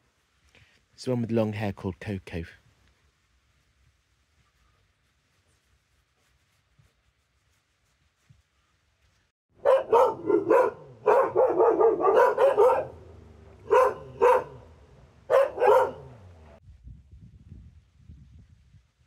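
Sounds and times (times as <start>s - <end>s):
dog barking: 9.6s - 16.4s.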